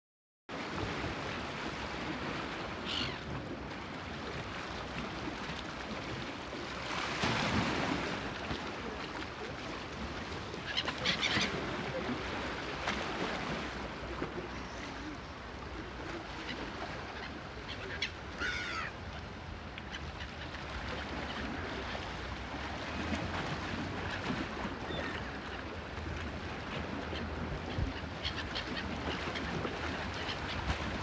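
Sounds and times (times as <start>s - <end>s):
wind: 0.5s - 31.0s
gulls calling: 2.8s - 3.3s, 10.5s - 12.2s, 14.3s - 19.0s.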